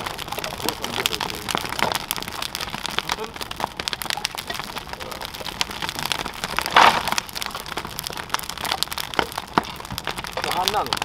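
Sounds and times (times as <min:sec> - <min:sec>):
fire rushing burst: 0:00.0 - 0:08.8
wood fire crackling and popping: 0:00.0 - 0:11.0.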